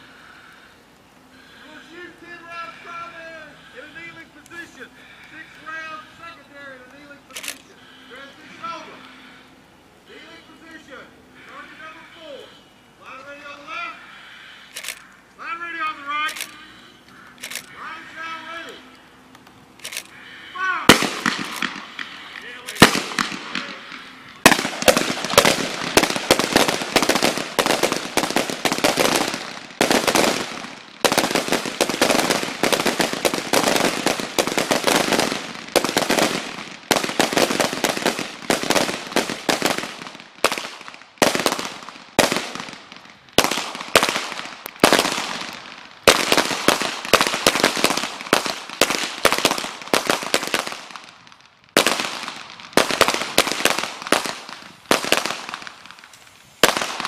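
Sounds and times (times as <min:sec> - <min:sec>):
rapid gunfire with echoes: 0:19.9 - 0:56.0, 0:56.6 - 0:57.0.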